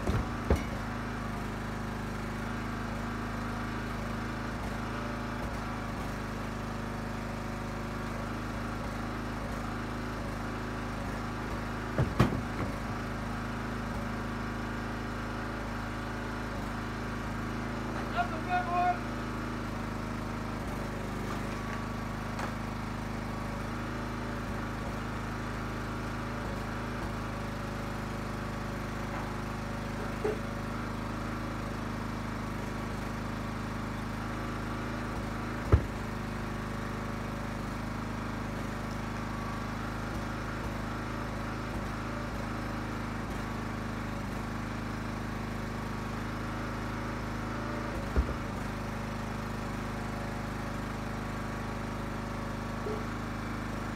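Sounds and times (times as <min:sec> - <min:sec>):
firewood splitting knocks: 0:00.0 - 0:01.0, 0:11.9 - 0:13.0, 0:21.2 - 0:22.7, 0:30.0 - 0:30.5, 0:35.6 - 0:36.2, 0:48.0 - 0:48.7
log splitter engine running: 0:00.0 - 0:53.9.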